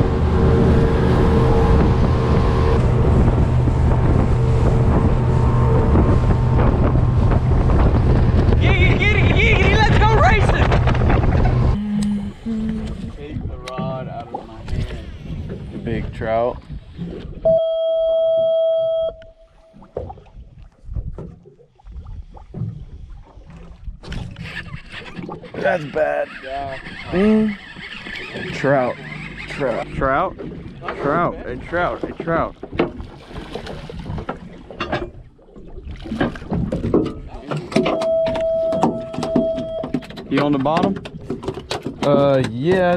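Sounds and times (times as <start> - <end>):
wind on microphone: 0.0 - 17.6, 20.0 - 25.5
boat motor droning: 0.0 - 20.0, 23.5 - 33.3, 36.1 - 42.9
low rumbling: 0.0 - 40.2
scattered knocks: 36.2 - 42.9.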